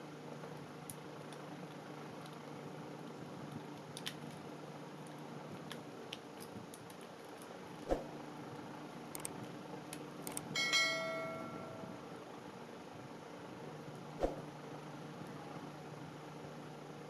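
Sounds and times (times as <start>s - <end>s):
bell ding sound effect: 10.6s - 12.0s.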